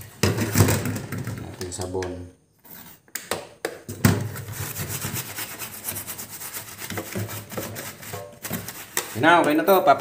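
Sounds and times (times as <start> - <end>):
brush scrubbing circuit board: 4.5 - 8.0.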